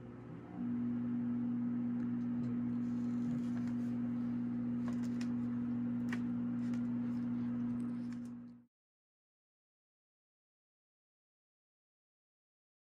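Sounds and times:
microwave oven humming: 0.0 - 8.7.

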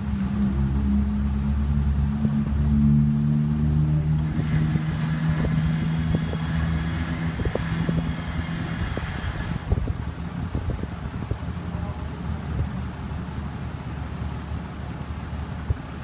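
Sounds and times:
truck engine running: 0.0 - 16.0
high whine: 4.0 - 10.8.

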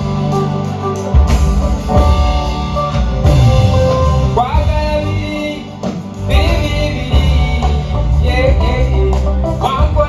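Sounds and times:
live band playing: 0.0 - 10.0
strong bass: 0.0 - 10.0
man singing into a microphone: 3.7 - 10.0.

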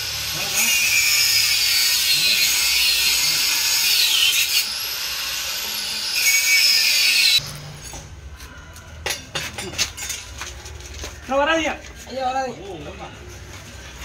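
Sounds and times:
angle grinder cutting: 0.0 - 7.7.

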